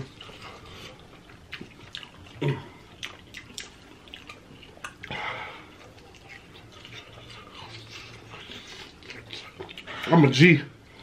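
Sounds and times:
lip smacks: 1.3 - 5.2.

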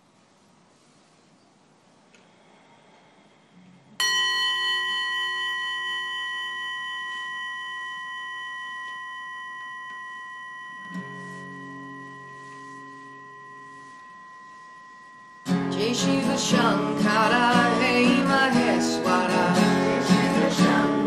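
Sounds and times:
bell ringing: 4.0 - 21.0
acoustic guitar chord: 10.8 - 21.0.

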